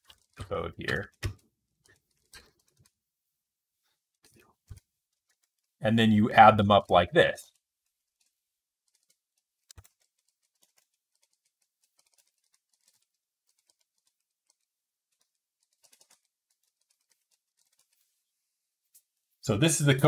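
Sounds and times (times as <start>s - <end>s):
typing on computer keyboard: 0.0s - 3.0s, 8.2s - 18.0s.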